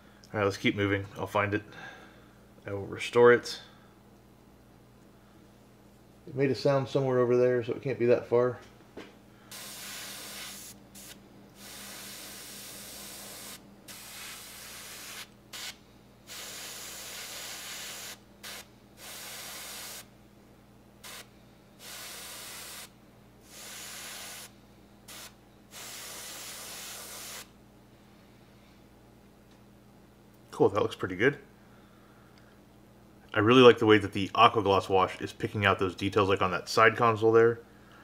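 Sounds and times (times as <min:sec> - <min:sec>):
airbrush spraying hiss: 0:09.5 - 0:20.1, 0:21.0 - 0:27.5.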